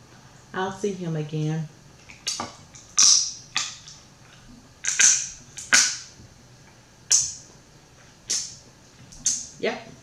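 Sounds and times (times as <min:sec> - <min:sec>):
crunchy eating noises: 0:01.9 - 0:09.6.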